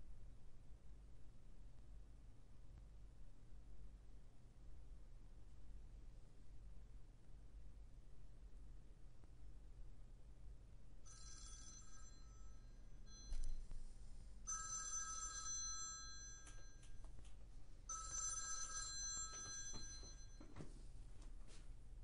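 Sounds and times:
telephone ringing: 0:11.1 - 0:13.7, 0:14.5 - 0:17.1, 0:17.9 - 0:20.6.

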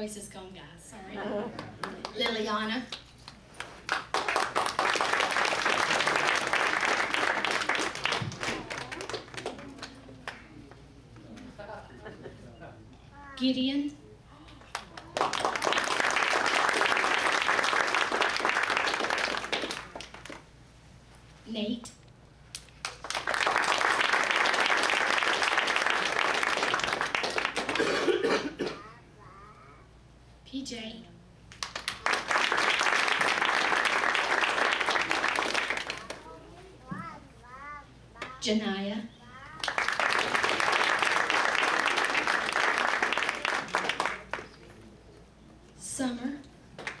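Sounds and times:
audience applauding: 0:03.3 - 0:10.4, 0:14.7 - 0:20.4, 0:22.8 - 0:28.0, 0:31.5 - 0:36.4, 0:39.5 - 0:44.7.

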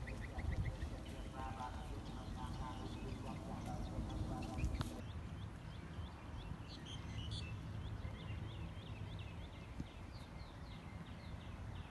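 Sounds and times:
steady low rumble: 0:00.0 - 0:06.5
small birds chirping: 0:00.0 - 0:11.9.

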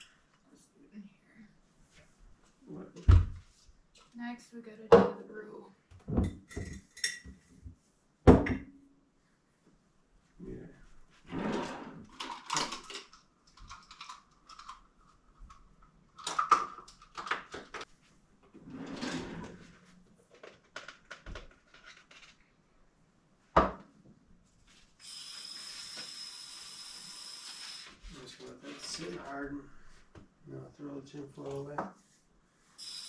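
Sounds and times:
drawers and utensils clattering: 0:11.3 - 0:13.1, 0:18.6 - 0:20.8.

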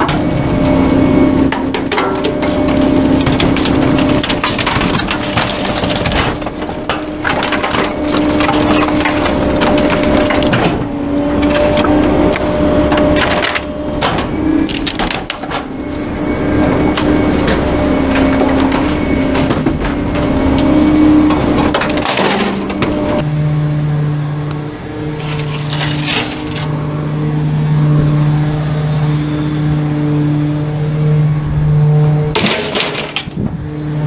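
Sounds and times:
wood cracking and splintering: 0:00.0 - 0:23.2, 0:25.2 - 0:26.7, 0:32.3 - 0:33.5
garbage truck hum: 0:00.0 - 0:34.0
hydraulic packer crushing furniture: 0:00.0 - 0:34.0.

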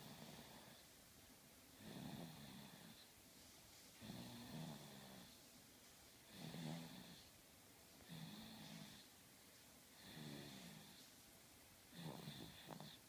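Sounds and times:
baby snoring softly: 0:00.0 - 0:01.0, 0:01.8 - 0:03.2, 0:03.9 - 0:05.5, 0:06.2 - 0:07.4, 0:08.0 - 0:09.2, 0:09.9 - 0:11.2, 0:11.9 - 0:13.0.

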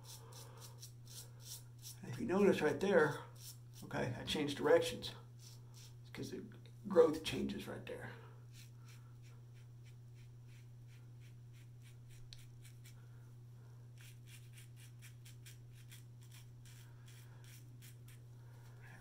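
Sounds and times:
razor scraping stubble: 0:00.0 - 0:04.0, 0:08.5 - 0:13.0, 0:14.0 - 0:18.2
steady low hum: 0:00.0 - 0:19.0.

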